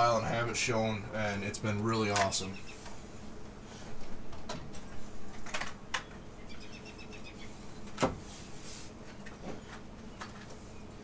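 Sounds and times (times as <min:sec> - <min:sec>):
small bird chirping: 0:02.4 - 0:02.9, 0:06.0 - 0:07.8.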